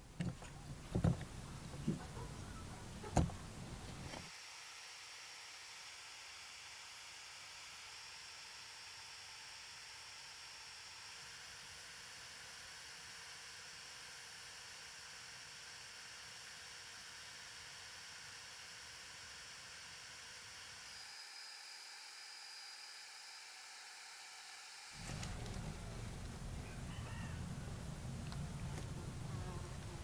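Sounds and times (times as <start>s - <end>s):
electric drill buzzing: 4.0s - 26.5s
faint steady hiss: 17.7s - 30.0s.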